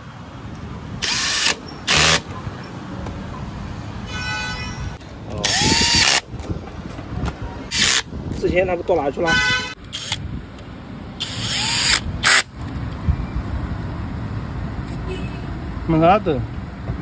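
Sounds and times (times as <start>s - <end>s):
cordless drill driving bolts: 1.0s - 2.4s, 5.4s - 6.3s, 7.7s - 8.1s, 9.8s - 10.2s, 11.2s - 12.5s.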